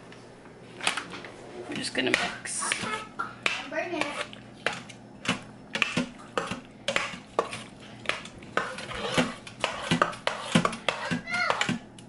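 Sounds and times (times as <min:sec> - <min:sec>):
metal spoon stirring in steel pot: 0:04.0 - 0:04.9, 0:05.8 - 0:11.7.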